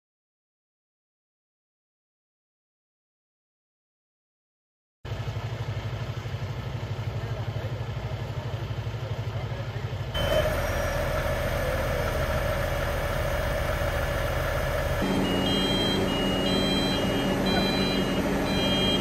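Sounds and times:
diesel trucks idling: 0:05.1 - 0:19.0
high-pitched beeping warning alarm: 0:10.2 - 0:19.0.

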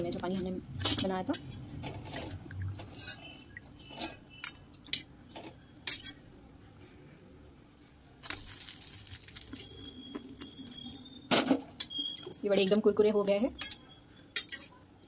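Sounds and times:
spoon clinking against steel bowl: 0:13.6 - 0:14.9.

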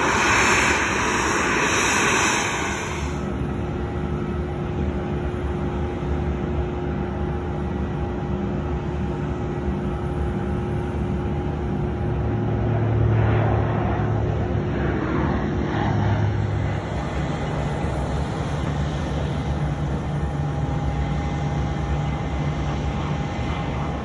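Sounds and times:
aircraft engine drone: 0:00.0 - 0:24.0
thin steady whine: 0:00.0 - 0:24.0.

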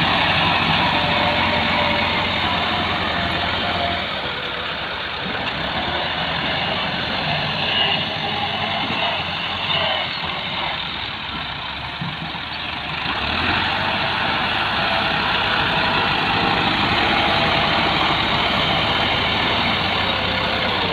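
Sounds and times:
diesel tractor engines running: 0:00.0 - 0:20.9.

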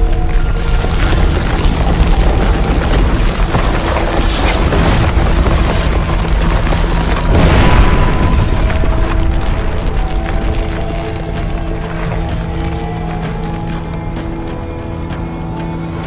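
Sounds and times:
cinematic soundtrack music: 0:00.0 - 0:16.0
deep heavy booms: 0:01.9 - 0:10.8.

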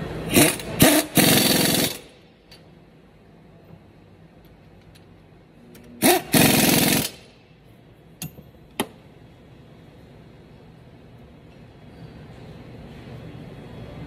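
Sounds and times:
pneumatic impact wrench hammering: 0:00.3 - 0:02.2, 0:06.0 - 0:07.4.

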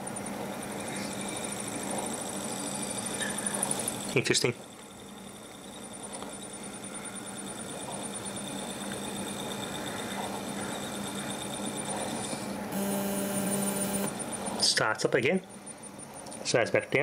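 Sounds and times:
hard drive motor hum and whine: 0:00.0 - 0:16.6.

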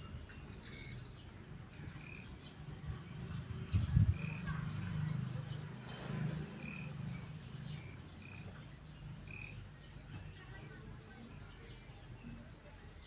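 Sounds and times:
low croaking animal calls: 0:06.6 - 0:09.8.

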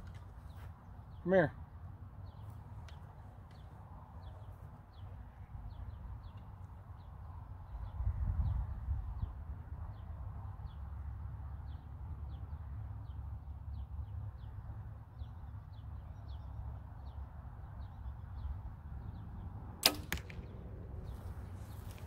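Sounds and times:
bird chirping: 0:11.6 - 0:19.3
bow shot snap: 0:19.8 - 0:20.6.

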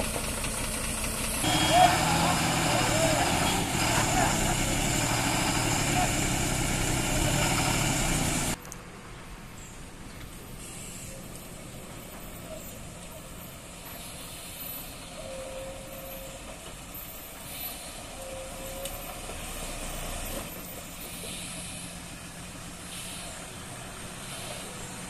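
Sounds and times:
diesel lorry engine running: 0:00.0 - 0:09.1, 0:16.0 - 0:25.0
air brakes hissing: 0:00.1 - 0:08.6, 0:10.4 - 0:25.0.

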